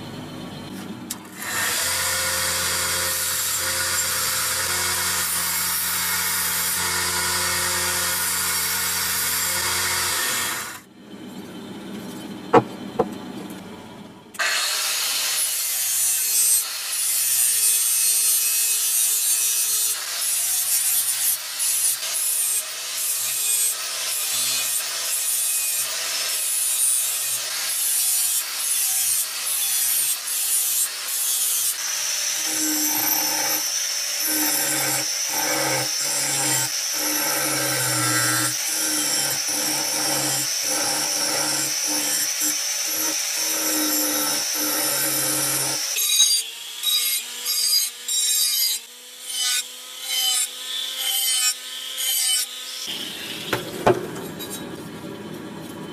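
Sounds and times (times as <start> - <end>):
abrasive tool scraping metal: 16.0 - 47.9.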